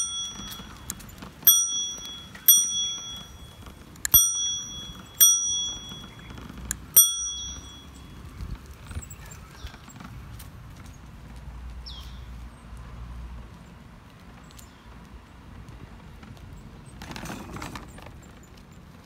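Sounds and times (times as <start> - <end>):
bicycle bell ringing: 0.0 - 8.4
bike clicks and rattles: 0.0 - 11.4, 13.6 - 19.0.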